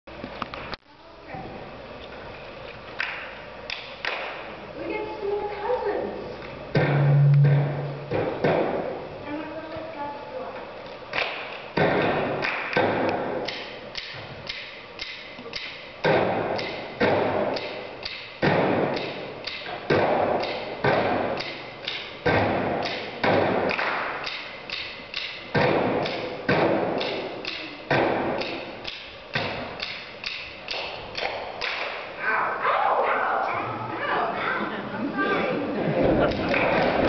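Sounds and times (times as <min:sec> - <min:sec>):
hands clapping in rhythm: 0:12.4 - 0:12.8, 0:23.7 - 0:24.4, 0:30.7 - 0:32.0.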